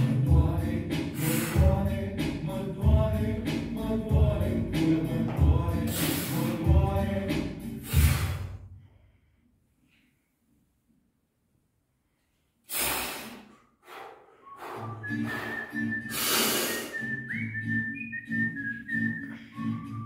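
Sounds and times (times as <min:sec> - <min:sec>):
forceful hissing exhales: 0:01.2 - 0:01.6, 0:05.9 - 0:06.6, 0:07.8 - 0:08.6, 0:12.7 - 0:17.0
music with whistled melody: 0:14.4 - 0:20.0.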